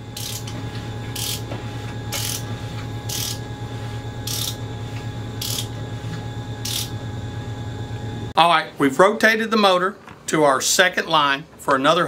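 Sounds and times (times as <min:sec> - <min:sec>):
steady low hum: 0:00.0 - 0:11.6
ratchet clicking: 0:00.2 - 0:00.5, 0:01.2 - 0:01.4, 0:02.2 - 0:02.4, 0:03.1 - 0:03.4, 0:04.3 - 0:04.6, 0:05.4 - 0:05.7, 0:06.6 - 0:06.9.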